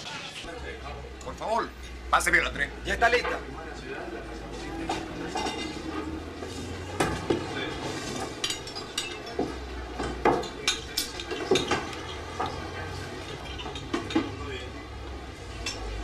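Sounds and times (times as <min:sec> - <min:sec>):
dishes and cutlery clinking: 0:04.5 - 0:14.8, 0:15.5 - 0:16.0.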